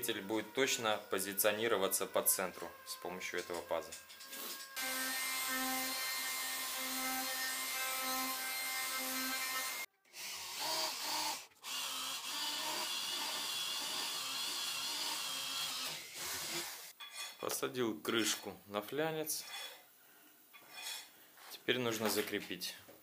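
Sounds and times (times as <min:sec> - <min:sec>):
electric router cutting wood: 0:04.8 - 0:16.9
electric drill whining: 0:09.0 - 0:16.9.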